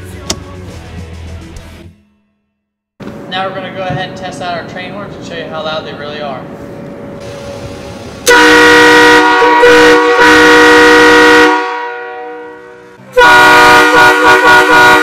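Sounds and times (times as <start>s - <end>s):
loud air horn blasts: 8.2s - 15.0s.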